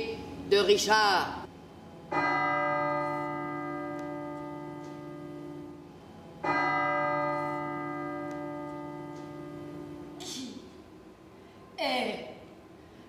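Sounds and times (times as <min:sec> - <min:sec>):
bell tolling: 0:02.1 - 0:10.2.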